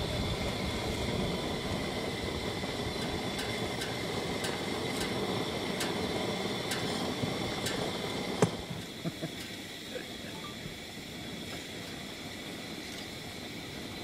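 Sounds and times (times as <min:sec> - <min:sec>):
propane burner firing: 0:00.0 - 0:14.0.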